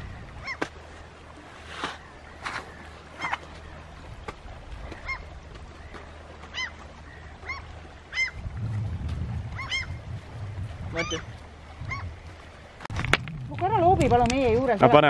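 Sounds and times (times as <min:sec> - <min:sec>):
seabirds calling: 0:00.0 - 0:15.0
low rumble: 0:08.4 - 0:12.3, 0:12.9 - 0:14.7.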